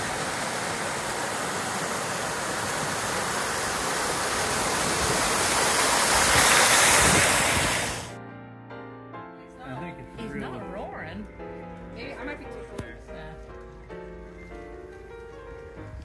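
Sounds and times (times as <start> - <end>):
waterfall rushing: 0.0 - 8.2.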